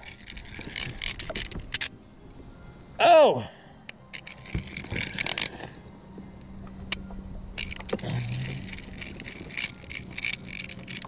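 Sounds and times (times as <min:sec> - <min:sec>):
fishing reel clicking and rattling: 0:00.0 - 0:01.9, 0:04.1 - 0:05.7, 0:07.6 - 0:11.0.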